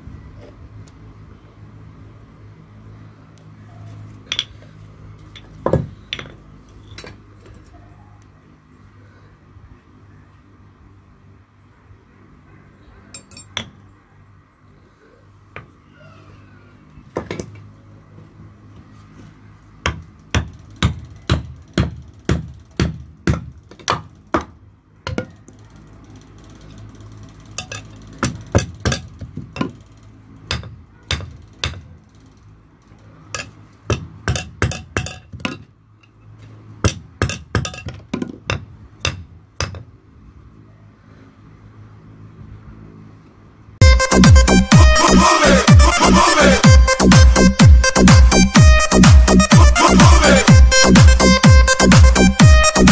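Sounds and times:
loud electronic music: 0:43.8 - 0:52.9.

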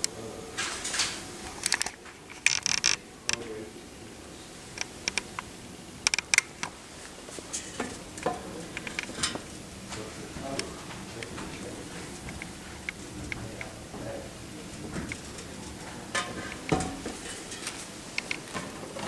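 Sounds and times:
faint steady background noise: 0:00.0 - 0:19.0
sharp clicks and light knocks: 0:00.6 - 0:03.5, 0:06.1 - 0:06.8, 0:14.9 - 0:18.8.

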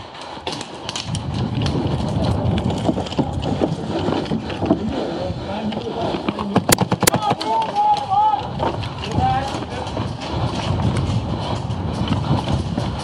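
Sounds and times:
footsteps running on wooden stairs: 0:06.2 - 0:13.0.

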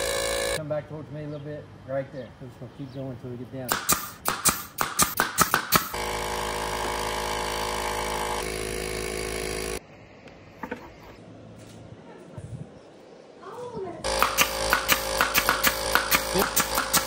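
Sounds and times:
air compressor motor humming: 0:00.0 - 0:00.6, 0:05.7 - 0:09.8, 0:14.1 - 0:17.0
nail gun firing into plywood: 0:03.7 - 0:09.6, 0:14.1 - 0:17.0.

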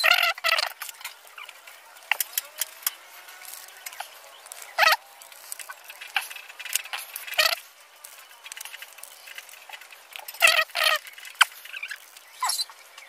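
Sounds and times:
plastic parts clicking and rattling: 0:00.0 - 0:13.0
short squeaky pitched sounds: 0:10.4 - 0:12.8.

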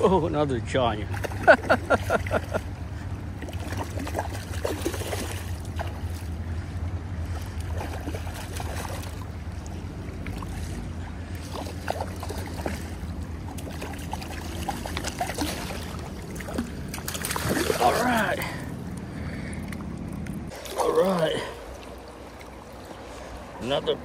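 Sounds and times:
river water lapping and trickling: 0:00.0 - 0:24.0
fish splashing at surface: 0:03.4 - 0:06.3, 0:11.4 - 0:18.6.

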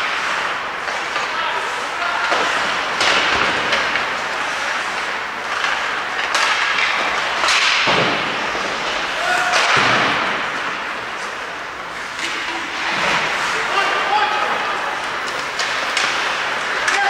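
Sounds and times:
skates hissing on ice: 0:00.0 - 0:07.1, 0:10.4 - 0:16.9
sticks and puck hitting boards: 0:00.0 - 0:17.0.

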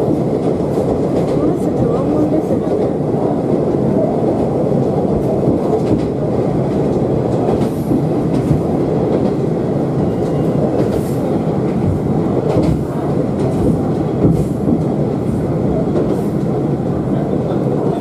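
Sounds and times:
railcar engine and wheels rumble: 0:00.0 - 0:18.0.

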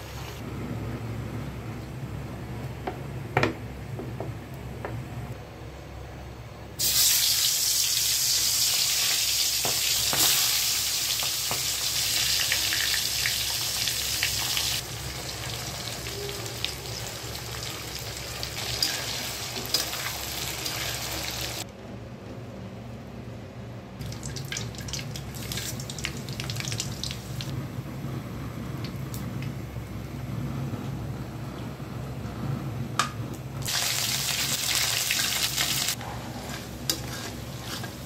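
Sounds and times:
fish frying in hot oil: 0:06.8 - 0:21.6, 0:24.0 - 0:27.5, 0:33.6 - 0:36.0.

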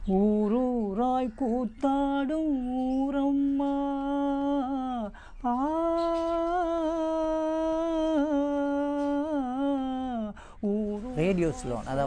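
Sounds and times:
man breathing in: 0:10.4 - 0:10.6
man singing long note: 0:10.6 - 0:12.0.

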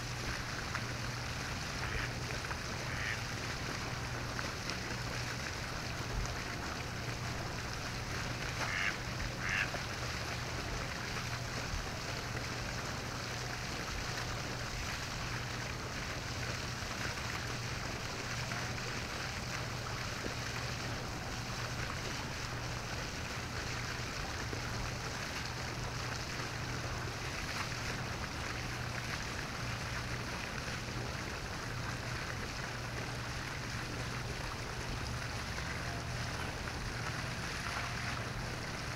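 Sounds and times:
outdoor background hiss: 0:00.0 - 0:38.9
waterfowl calls: 0:02.9 - 0:03.2, 0:08.6 - 0:09.8.

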